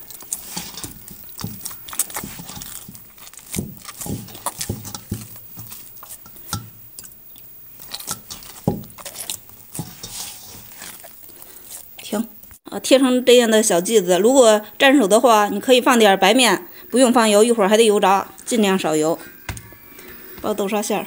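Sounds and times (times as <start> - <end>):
dough squishing and slapping: 0.0 - 12.6.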